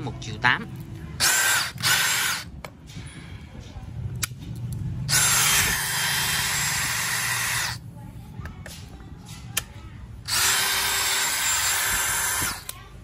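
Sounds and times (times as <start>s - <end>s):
drill spinning with whine: 1.2s - 2.5s, 5.1s - 7.8s, 10.3s - 12.7s.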